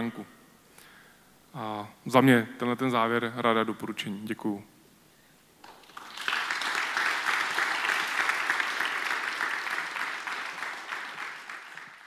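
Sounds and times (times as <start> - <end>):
audience applauding: 5.6 - 12.0.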